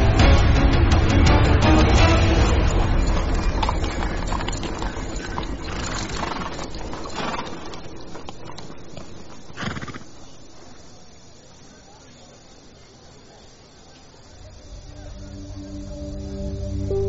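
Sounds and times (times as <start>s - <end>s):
horse hooves clattering on stone: 1.0s - 10.2s.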